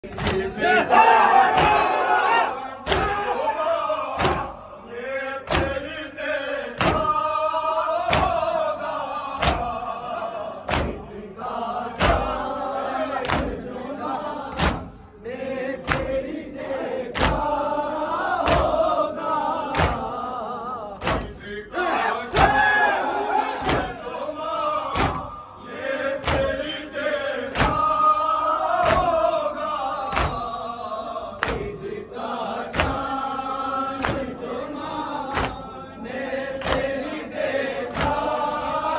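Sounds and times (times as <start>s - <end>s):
men chanting together: 0.0s - 38.9s
hands slapping chests: 0.1s - 0.6s, 2.8s - 3.3s, 4.1s - 4.6s, 5.4s - 6.0s, 6.8s - 7.2s, 8.0s - 8.6s, 9.4s - 9.9s, 10.6s - 11.1s, 12.0s - 12.4s, 13.2s - 13.7s, 14.5s - 15.0s, 15.8s - 16.2s, 17.1s - 17.5s, 18.4s - 18.8s, 19.6s - 20.2s, 21.0s - 21.4s, 22.3s - 22.6s, 23.6s - 24.0s, 24.9s - 25.4s, 26.1s - 26.7s, 27.5s - 28.0s, 28.7s - 29.4s, 30.0s - 30.6s, 31.4s - 31.8s, 32.6s - 33.1s, 34.0s - 34.4s, 35.3s - 35.7s, 36.6s - 38.4s.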